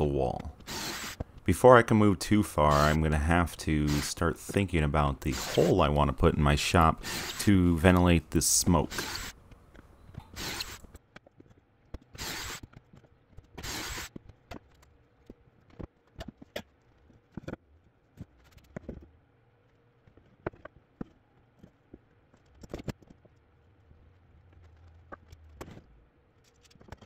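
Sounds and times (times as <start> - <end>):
cordless drill bursts: 0.7 - 1.2, 7.0 - 7.4, 8.9 - 9.3, 10.3 - 10.8, 12.1 - 12.6, 13.6 - 14.1
knocks and clicks of handled wood: 14.1 - 19.2, 20.0 - 23.5, 24.5 - 27.0.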